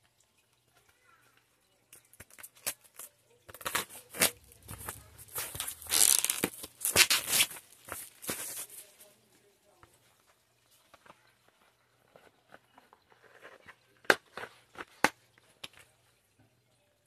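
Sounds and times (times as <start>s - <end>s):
plastic shrink-wrap tearing: 1.9s - 9.1s.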